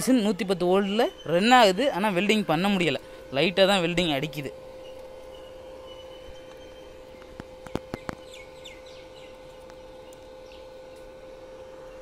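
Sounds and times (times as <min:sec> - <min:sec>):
welding machine hum: 0:00.0 - 0:12.0
bird chirps: 0:00.6 - 0:01.8, 0:04.8 - 0:10.7.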